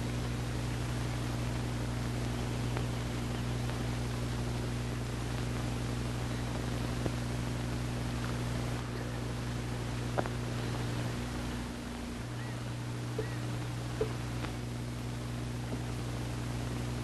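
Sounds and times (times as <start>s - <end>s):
constant hiss: 0.0s - 17.0s
low electrical hum: 0.0s - 17.0s
faint clicks: 6.4s - 7.2s, 10.1s - 10.4s, 13.1s - 14.6s.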